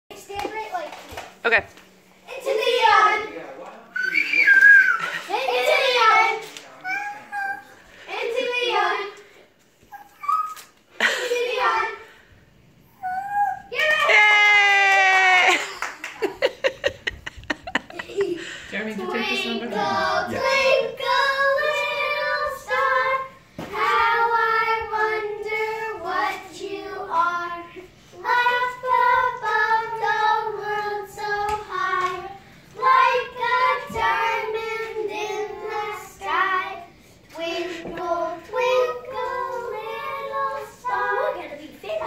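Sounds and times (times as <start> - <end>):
children singing: 19.0 - 41.4.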